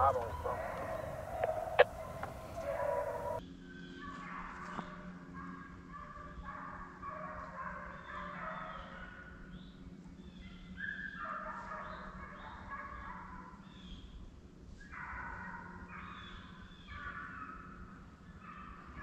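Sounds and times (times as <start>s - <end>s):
hounds baying and yelping: 0.0s - 3.4s, 5.4s - 9.3s, 10.6s - 13.6s, 14.8s - 19.0s.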